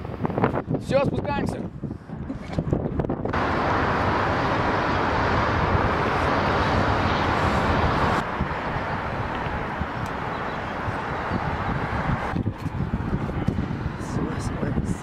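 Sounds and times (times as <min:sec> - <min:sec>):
wind rushing: 0:00.0 - 0:15.0
distant city traffic: 0:03.2 - 0:15.0.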